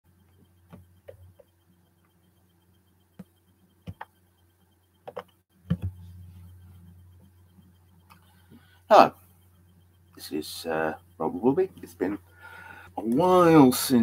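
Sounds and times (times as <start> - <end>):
low electrical hum: 0.1 - 14.0
small clicks and knocks: 5.0 - 6.1.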